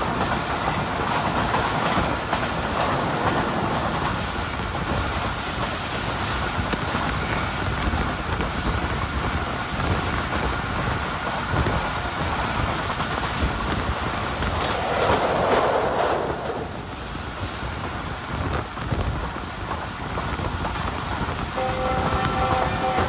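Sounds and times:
train wheels rumbling on rails: 0.0s - 23.0s
rushing noise: 11.5s - 21.8s.

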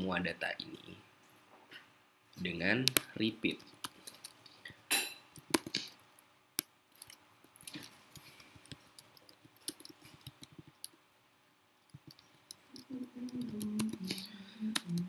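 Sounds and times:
typing on computer keyboard: 7.0s - 11.0s, 11.8s - 15.0s.

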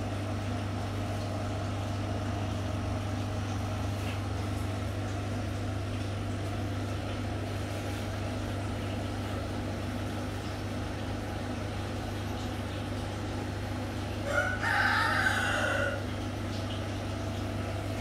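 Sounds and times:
steady low hum: 0.0s - 14.6s
rooster crowing: 14.2s - 16.1s.

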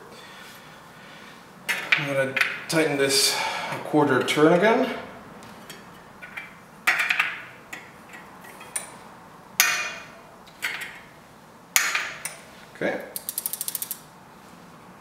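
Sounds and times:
freewheel ratchet ticking: 13.2s - 14.0s.

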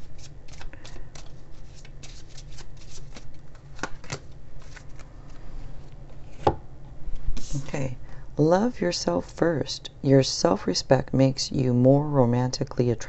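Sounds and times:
cards shuffled by hand: 0.0s - 5.7s, 7.1s - 7.7s.

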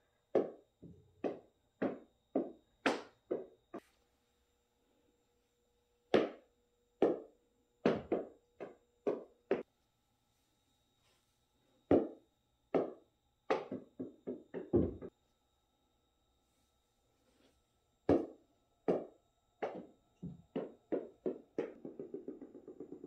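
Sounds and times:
small ball bouncing on wood floor: 0.3s - 3.6s, 7.0s - 9.6s, 11.9s - 15.1s, 18.1s - 23.0s.

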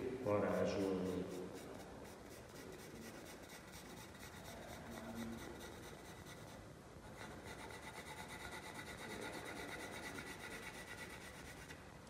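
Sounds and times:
pencil scratching on paper: 0.4s - 11.8s.

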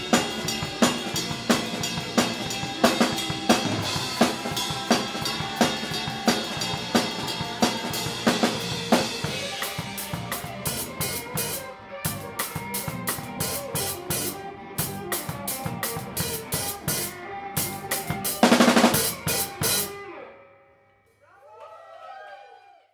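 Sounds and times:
cymbal beat: 0.0s - 11.2s
drum kit: 0.0s - 20.1s
rock band playing live: 0.0s - 20.4s.

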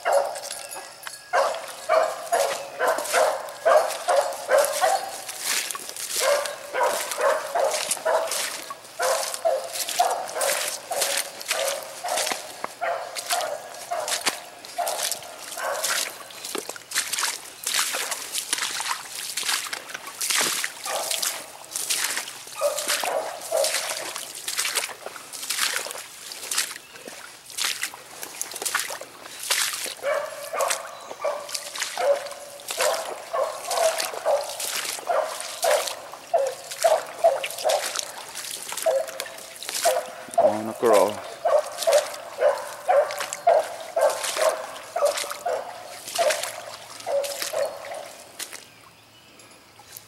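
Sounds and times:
hound baying: 0.0s - 16.1s, 20.9s - 21.2s, 22.6s - 24.0s, 30.0s - 38.2s, 38.8s - 48.2s
water splashing underfoot: 0.0s - 50.0s.

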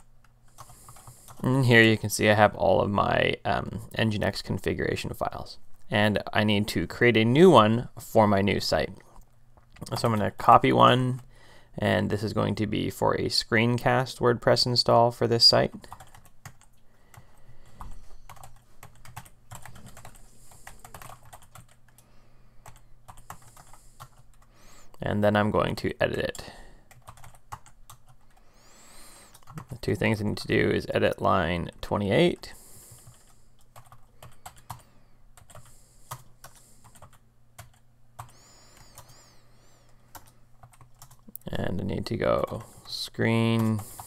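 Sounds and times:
keyboard typing: 0.0s - 1.5s, 15.7s - 24.5s, 26.1s - 28.4s, 29.3s - 30.0s, 33.0s - 39.2s, 40.1s - 41.4s
computer keyboard keystrokes: 15.8s - 16.8s, 17.8s - 22.0s, 26.9s - 28.4s, 40.1s - 41.3s.

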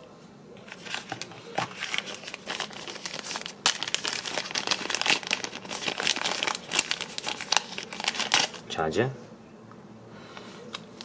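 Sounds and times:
packaging crinkling: 0.7s - 8.7s, 10.7s - 11.0s.

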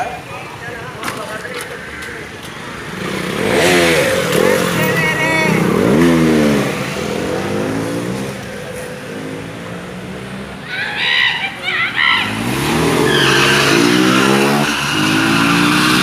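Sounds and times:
tyre squealing on asphalt: 0.0s - 16.0s
motorcycle engine revving: 2.6s - 10.6s, 12.0s - 16.0s.

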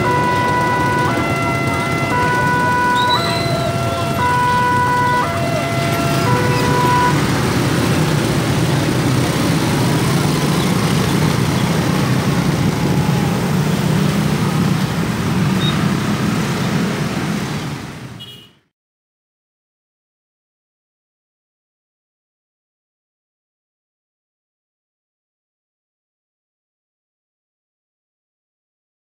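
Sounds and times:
railroad crossing alarm tones: 0.0s - 10.9s
motorcycle and car traffic: 0.0s - 18.7s.

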